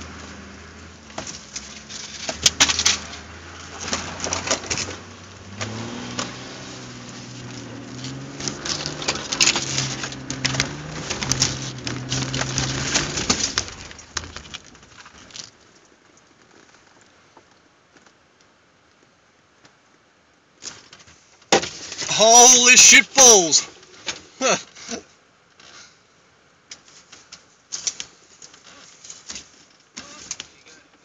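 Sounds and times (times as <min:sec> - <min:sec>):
engine labouring uphill: 0:00.0 - 0:15.4
tyres and suspension clattering: 0:00.0 - 0:15.4.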